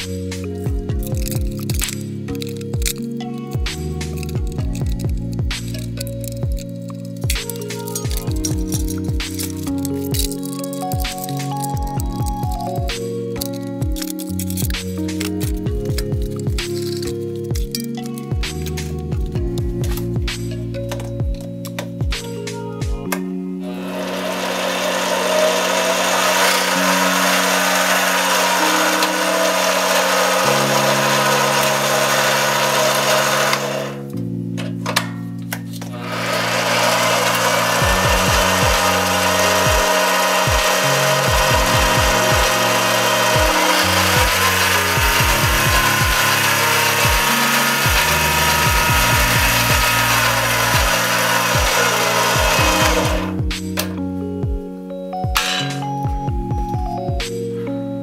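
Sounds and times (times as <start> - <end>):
background music with low notes: 0.0 - 58.0
lathe motor whirring: 23.6 - 34.1, 35.8 - 54.0.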